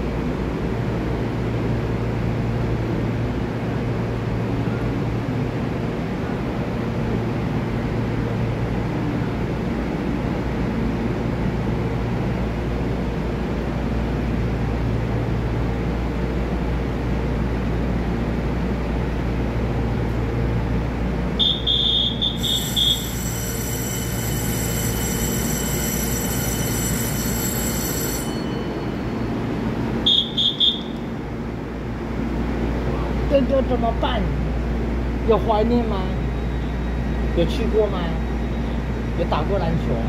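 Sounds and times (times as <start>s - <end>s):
train humming: 0.0s - 40.0s
steady high electronic tone: 21.4s - 31.0s.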